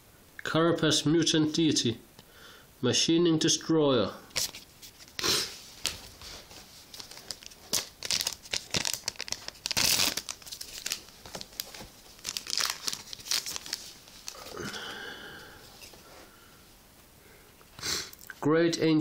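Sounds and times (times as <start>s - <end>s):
wrapper crinkling and tearing: 4.3s - 14.8s.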